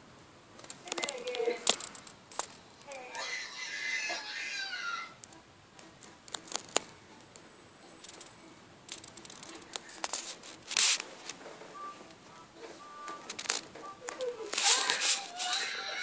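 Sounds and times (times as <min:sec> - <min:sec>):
small clicks and breaths: 0:00.6 - 0:03.0, 0:06.0 - 0:11.4.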